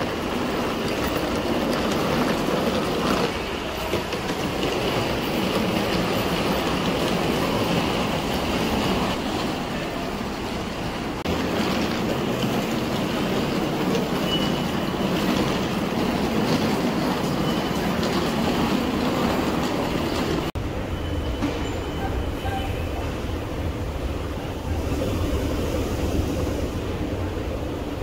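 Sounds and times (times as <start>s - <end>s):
subway station rumbling: 0.0s - 28.0s.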